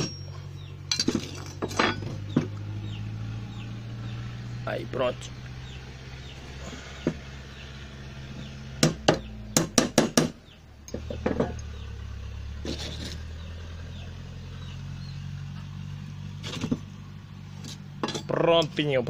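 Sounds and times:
metallic hammer clinks: 0.0 - 2.0.

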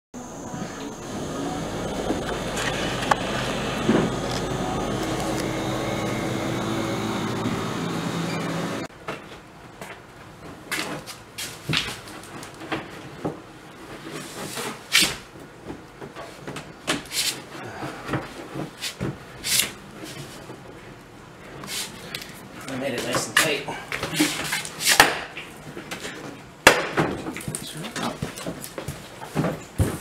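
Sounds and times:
steady droning with held tones: 0.2 - 8.9.

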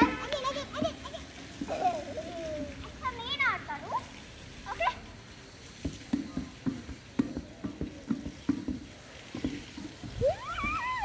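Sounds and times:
child crying out: 10.2 - 11.0.

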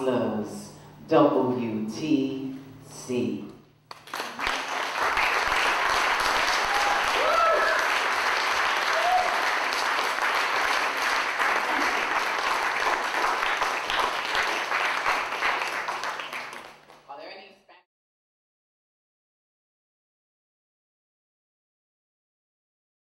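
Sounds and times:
audience applauding: 3.9 - 17.0
crowd shouts: 6.5 - 7.9, 8.9 - 9.4.

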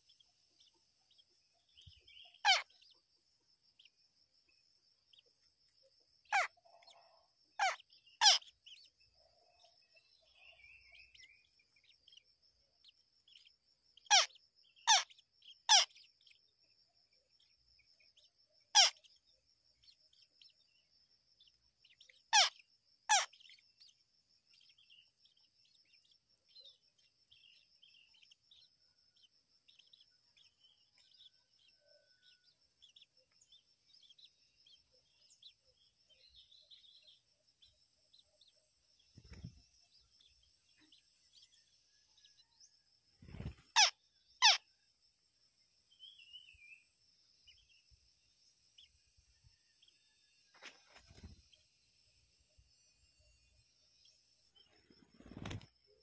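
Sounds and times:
faint soft chirping: 0.0 - 56.0.

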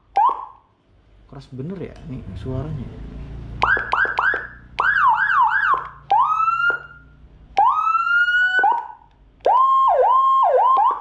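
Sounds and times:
electronic siren bursts: 3.6 - 11.0.

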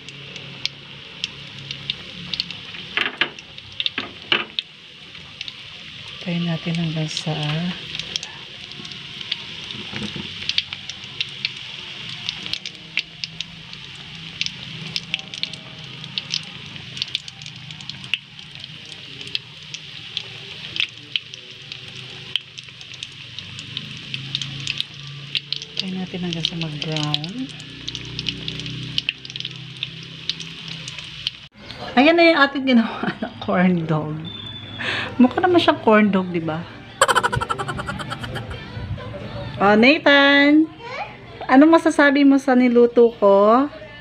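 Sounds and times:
oil crackling and popping: 0.0 - 31.5
corn dogs sizzling in oil: 0.0 - 36.3, 37.0 - 38.3.

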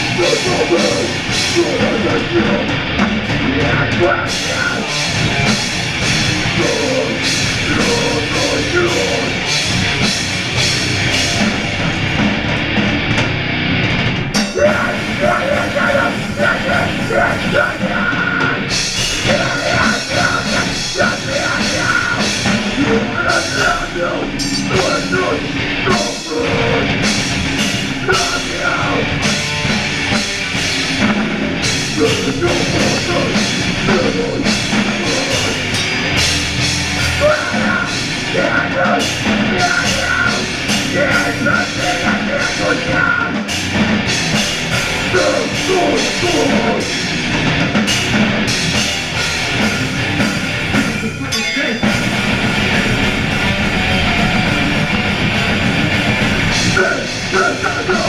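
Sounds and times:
vocalist on microphone: 0.0 - 5.5, 6.3 - 9.6, 14.4 - 29.4, 31.8 - 35.9, 37.0 - 43.6, 45.0 - 47.3, 50.7 - 52.0, 56.5 - 58.0
distorted electric guitars: 0.0 - 58.0
drum kit: 0.0 - 58.0.

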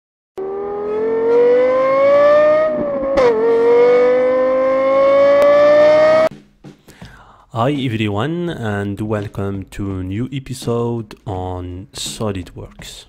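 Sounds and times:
car engine accelerating: 0.4 - 6.3.

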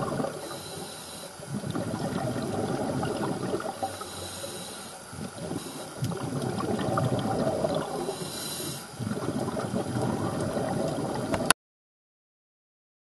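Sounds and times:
diver breathing through regulator: 0.0 - 11.1
bubbling exhalations: 0.0 - 11.5
short hiss: 8.0 - 8.9.

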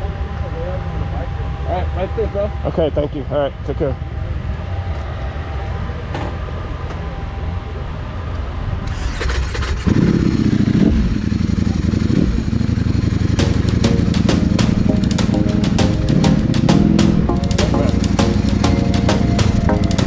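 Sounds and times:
motorcycle engine idling and revving: 4.0 - 20.0.

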